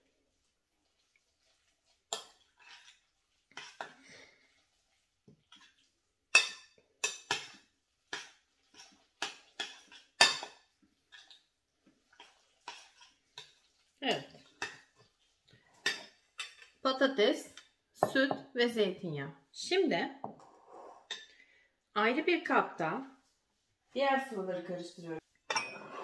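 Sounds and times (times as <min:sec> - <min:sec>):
metal spoon scraping a bowl: 0:25.5 - 0:26.0.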